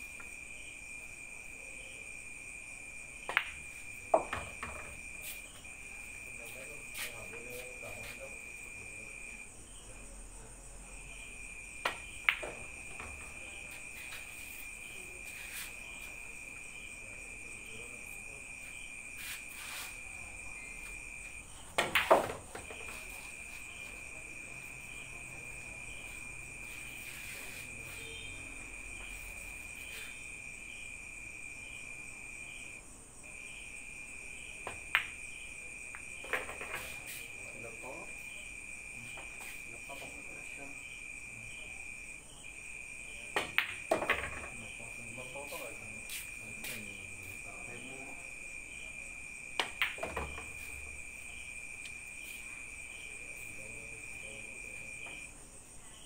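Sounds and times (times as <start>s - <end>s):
crickets chirping: 0.0s - 56.0s
pool balls clicking: 21.8s - 23.0s, 43.4s - 44.6s, 49.6s - 50.6s.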